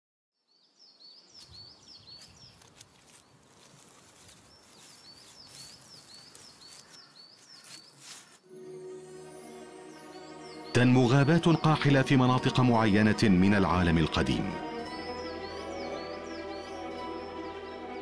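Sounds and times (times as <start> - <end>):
small bird chirping: 0.4 - 8.4.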